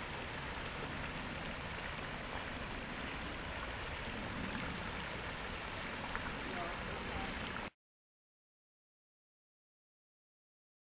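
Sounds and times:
river water rushing over rocks: 0:00.0 - 0:07.7.

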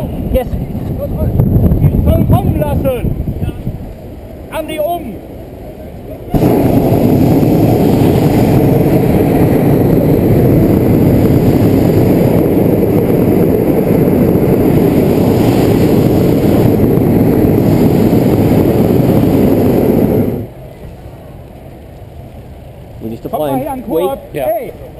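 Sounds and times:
propane burner blast: 0:06.3 - 0:20.5.

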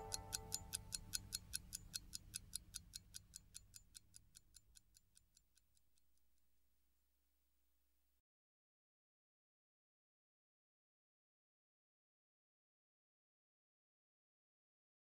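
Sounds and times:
rapid even ticking: 0:00.0 - 0:06.1.

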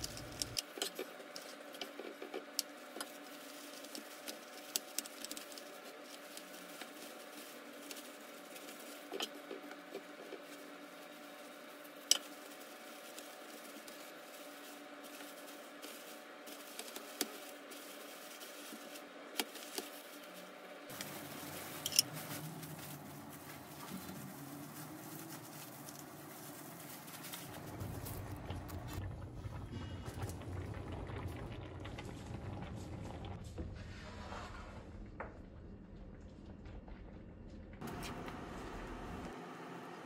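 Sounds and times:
plastic wrap crinkling: 0:00.0 - 0:29.0.

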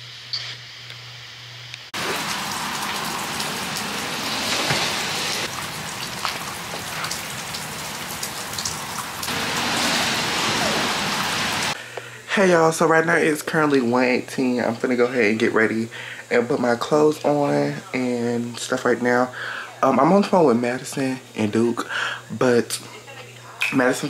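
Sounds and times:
falling water hiss: 0:01.9 - 0:11.8.

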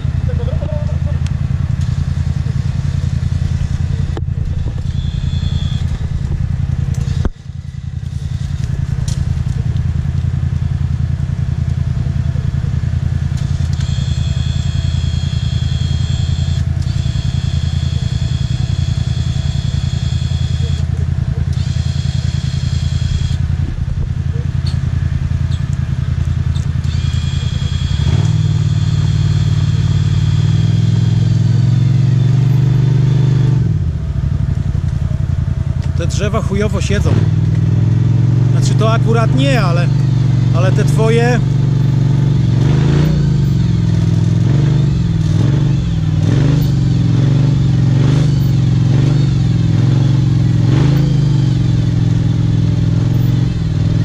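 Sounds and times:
quad engine idling: 0:00.0 - 0:54.0
thin high whine: 0:01.8 - 0:08.7.

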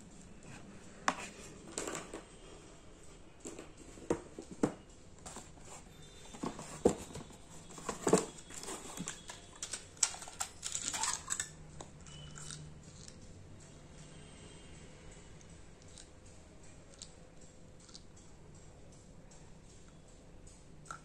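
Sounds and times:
plastic packaging rustling: 0:05.3 - 0:11.6.

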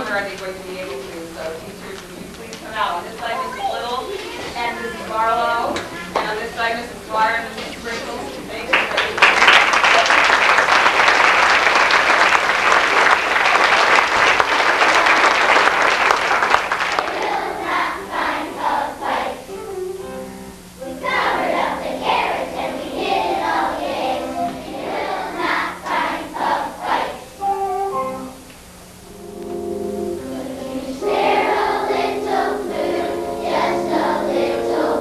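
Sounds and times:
audience applauding: 0:08.7 - 0:17.5
children singing together: 0:17.0 - 0:19.5, 0:20.8 - 0:28.2, 0:30.0 - 0:35.0.

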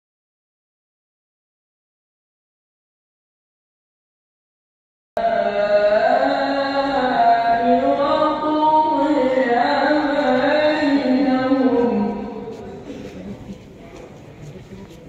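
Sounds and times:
man chanting through loudspeakers: 0:05.2 - 0:12.9.

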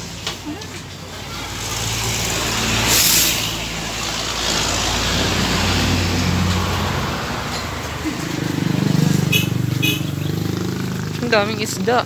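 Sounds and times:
road traffic passing: 0:00.0 - 0:12.0
short hiss: 0:02.8 - 0:03.6.

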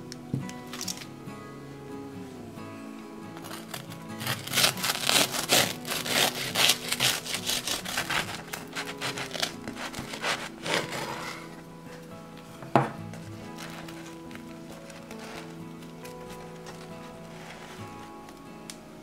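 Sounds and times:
knife sawing through toasted sandwich: 0:03.4 - 0:11.5.

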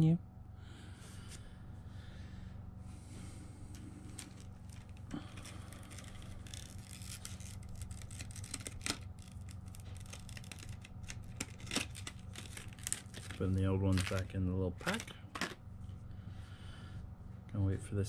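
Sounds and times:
steady low hum: 0:00.0 - 0:18.0
hands handling small objects: 0:03.7 - 0:15.6.

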